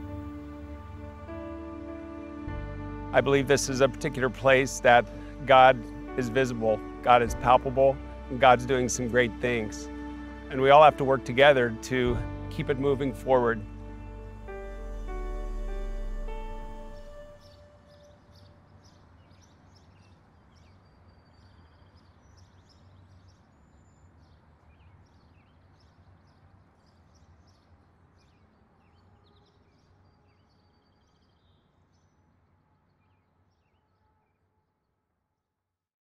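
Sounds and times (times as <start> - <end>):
low steady hum: 0.0 - 18.6
small birds chirping: 16.9 - 34.0.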